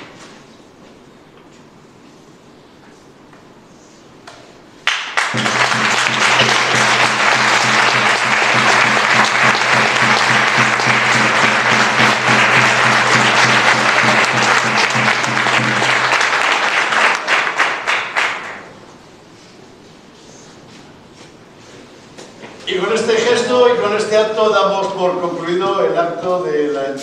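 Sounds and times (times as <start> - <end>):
audience applauding: 4.8 - 18.7.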